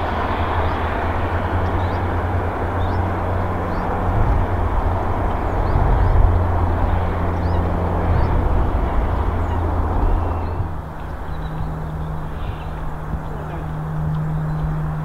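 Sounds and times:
low outdoor rumble: 0:00.0 - 0:15.0
small birds chirping: 0:05.3 - 0:15.0.

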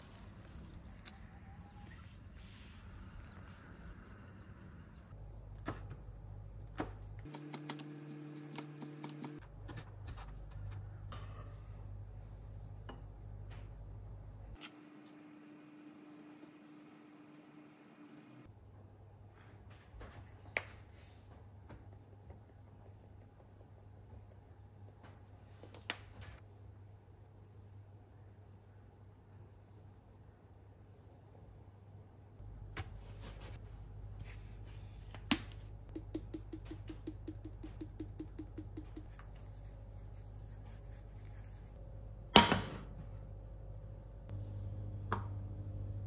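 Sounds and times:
steady low hum: 0:32.4 - 0:46.0.

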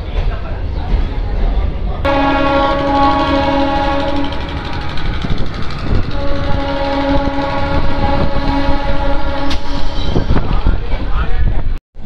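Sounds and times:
train rumbling on track: 0:00.0 - 0:11.8
train horn blast: 0:02.1 - 0:04.8, 0:06.0 - 0:10.2.

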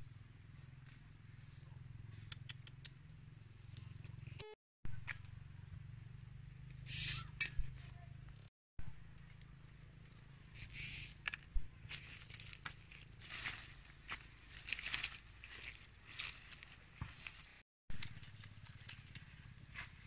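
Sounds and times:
low steady rumble: 0:03.0 - 0:20.0
leaves and twigs rustling: 0:10.6 - 0:20.0
twigs snapping: 0:11.2 - 0:19.3.

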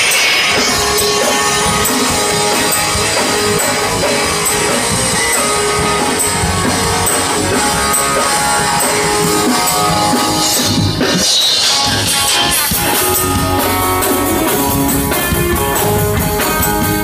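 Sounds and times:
drum kit beat: 0:00.0 - 0:17.0
rock band playing: 0:00.0 - 0:17.0.

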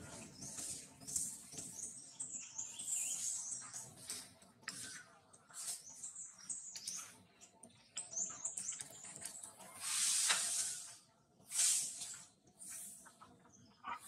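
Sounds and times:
loud hissing rustles: 0:09.8 - 0:13.0.

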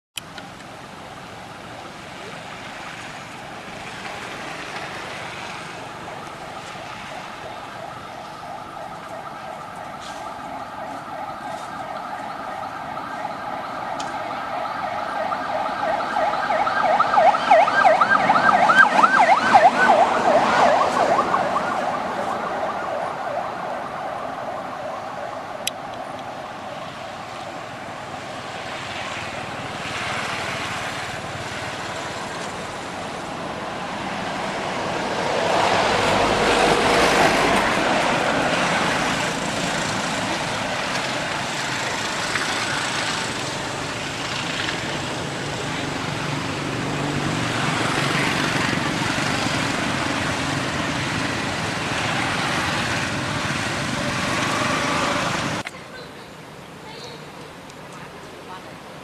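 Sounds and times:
warbling siren: 0:05.5 - 0:29.7, 0:30.8 - 0:55.3.

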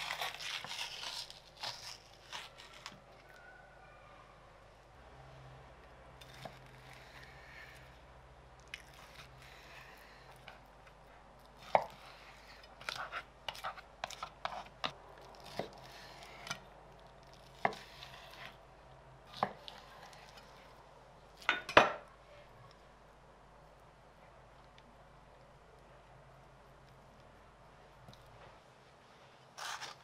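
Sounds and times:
knife cutting through ribs: 0:00.0 - 0:03.0, 0:17.5 - 0:18.6, 0:29.6 - 0:30.0.

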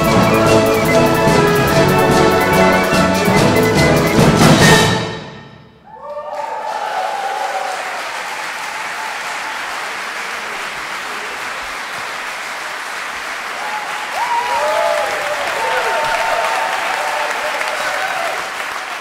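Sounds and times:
wind band chord: 0:00.0 - 0:05.6
audience cheers: 0:05.8 - 0:11.6, 0:13.4 - 0:19.0
audience applause: 0:05.9 - 0:19.0.

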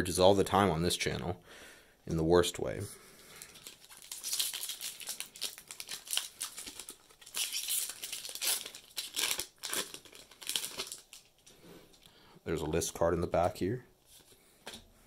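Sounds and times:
foil wrapper crinkling and tearing: 0:03.4 - 0:11.5.

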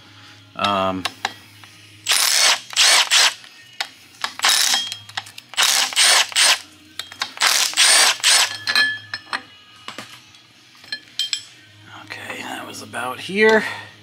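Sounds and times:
impact wrench bursts: 0:02.1 - 0:03.4, 0:04.4 - 0:04.9, 0:05.5 - 0:06.6, 0:07.4 - 0:08.6.

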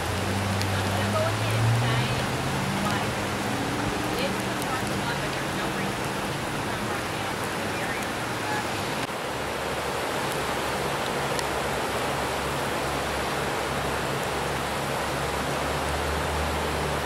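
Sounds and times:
flood water rushing: 0:00.0 - 0:17.0.

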